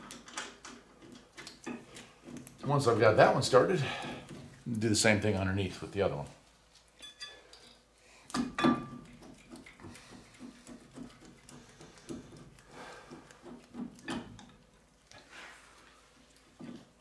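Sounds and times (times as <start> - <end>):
metal clinks and knocks: 0.0 - 2.7, 7.0 - 15.0.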